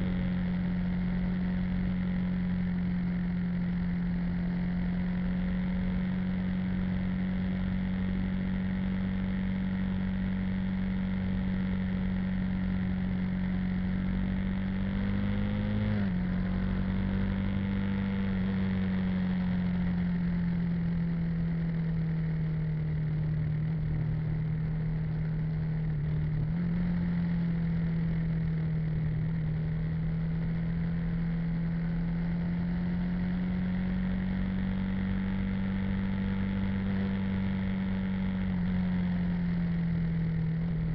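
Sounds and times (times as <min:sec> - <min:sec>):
road noise: 0:00.0 - 0:40.9
vehicle engine running: 0:00.0 - 0:40.9
wind: 0:00.0 - 0:40.9.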